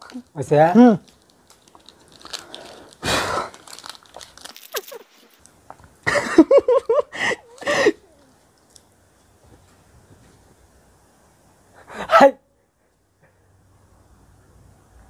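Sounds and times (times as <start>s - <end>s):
wrapper crinkling and tearing: 0.0s - 6.0s
breathy burst: 2.2s - 3.7s, 7.1s - 8.3s
person laughing: 4.6s - 5.4s, 6.0s - 8.2s.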